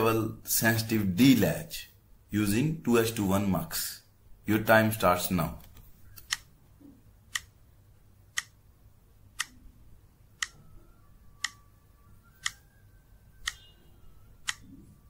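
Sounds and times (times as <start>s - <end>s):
countdown timer ticking: 9.3s - 14.8s.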